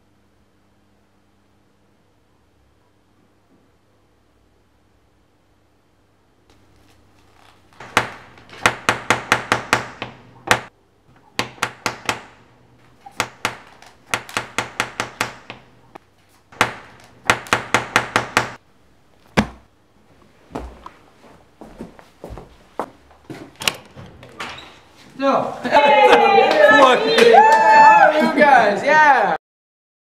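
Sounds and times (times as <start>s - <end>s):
knocking on wooden door: 7.8s - 10.7s, 11.4s - 12.4s, 13.2s - 15.7s, 16.6s - 18.6s.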